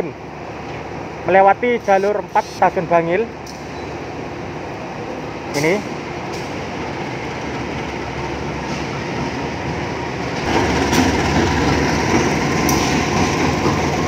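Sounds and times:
locomotive engine passing: 4.0 - 14.0
wheels clacking on track: 5.6 - 14.0.

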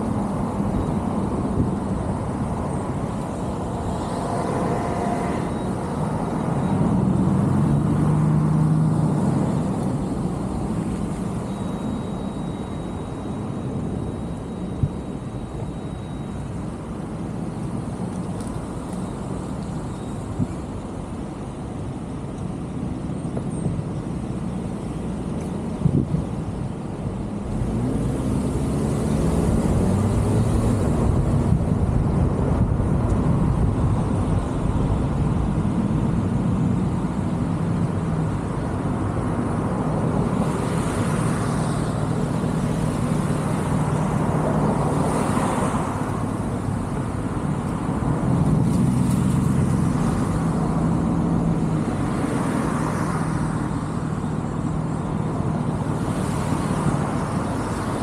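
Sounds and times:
car engine and tyre noise: 0.0 - 58.0
passing traffic: 0.0 - 58.0.

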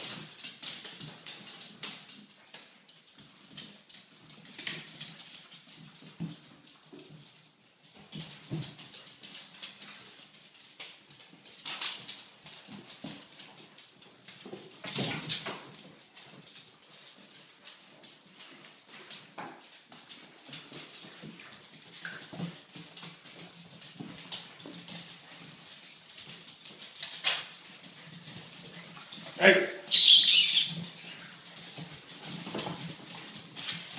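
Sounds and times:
dog claws clicking on floor: 0.0 - 33.9.

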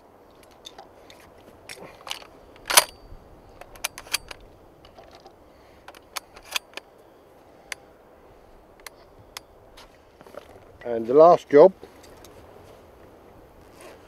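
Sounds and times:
shotgun being loaded clicks: 1.7 - 3.0, 3.6 - 5.3, 5.9 - 6.9.

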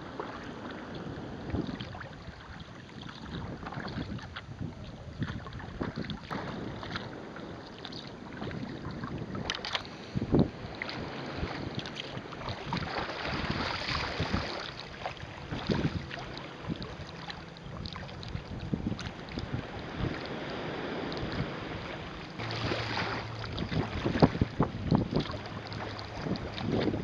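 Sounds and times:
water splashing against kayak hull: 0.0 - 27.0
wind buffeting microphone: 0.0 - 27.0.

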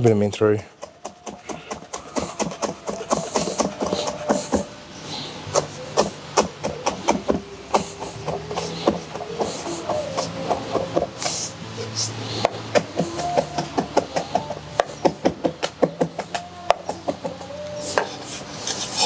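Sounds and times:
knife chopping on plastic board: 0.8 - 4.7.

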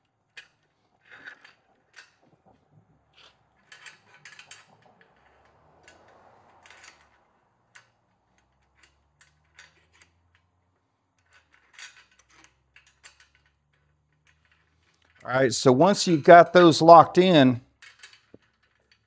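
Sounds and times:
chain links clinking on steel: 0.0 - 16.7, 17.6 - 19.0
metal scraping on metal: 0.3 - 15.3.

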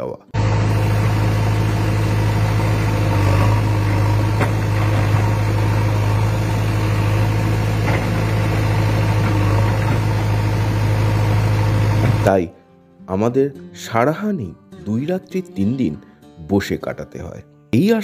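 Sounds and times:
vehicle engine idling: 0.4 - 12.3.

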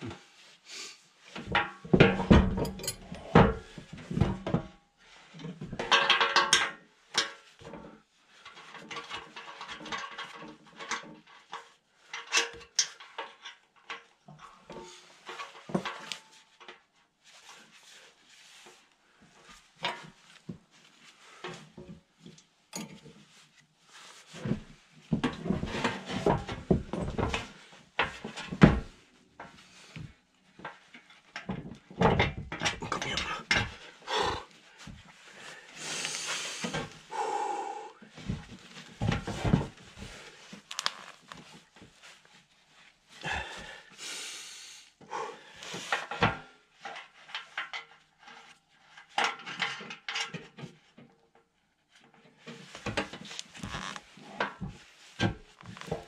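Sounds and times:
metal hardware clinking: 2.3 - 3.4.

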